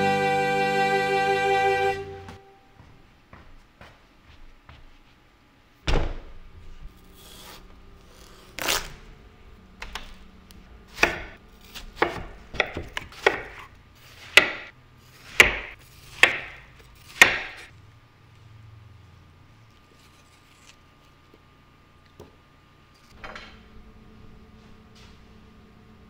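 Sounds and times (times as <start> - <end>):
knife chopping on cutting board: 10.9 - 17.7.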